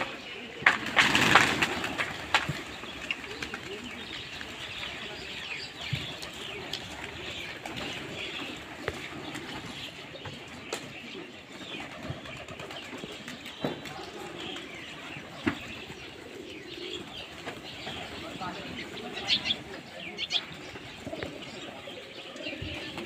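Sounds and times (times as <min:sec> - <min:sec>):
small birds chirping: 0:00.0 - 0:23.0
pigeons flapping wings: 0:00.1 - 0:09.9, 0:11.7 - 0:19.2, 0:22.5 - 0:23.0.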